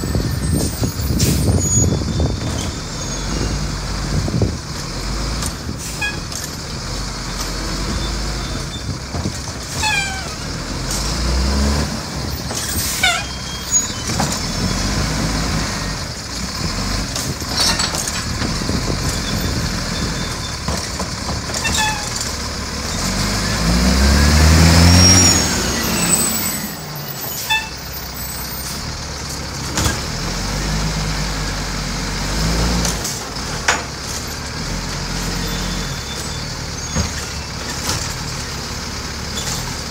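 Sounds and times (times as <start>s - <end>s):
short falling squeals: 0.0s - 3.8s, 9.7s - 10.5s, 12.4s - 15.0s, 21.6s - 22.2s, 24.6s - 28.8s, 35.2s - 37.7s
garbage truck engine revving: 0.0s - 39.9s.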